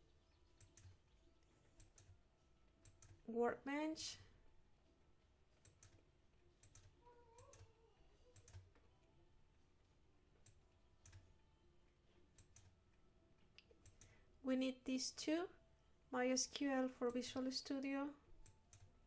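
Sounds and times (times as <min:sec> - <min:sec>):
faint mouse clicks: 0:06.6 - 0:08.8.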